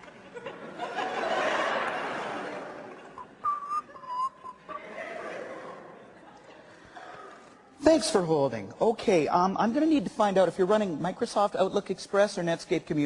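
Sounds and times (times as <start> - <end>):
audience laughter: 0.0 - 3.5, 4.6 - 7.3
short whistled notes: 3.2 - 4.8.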